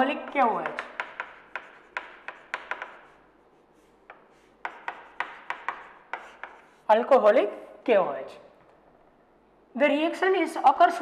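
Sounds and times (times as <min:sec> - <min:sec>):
chalk writing on a chalkboard: 0:00.3 - 0:07.1.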